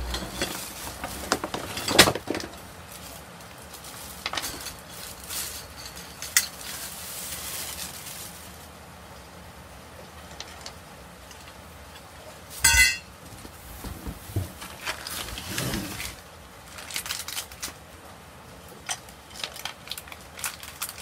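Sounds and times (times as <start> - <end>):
metal tubes clanking: 0.0 - 2.6, 12.6 - 13.1.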